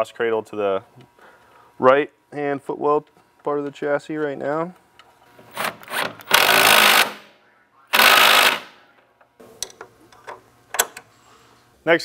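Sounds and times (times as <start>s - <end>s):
impact driver running: 5.4s - 7.3s, 8.0s - 8.8s.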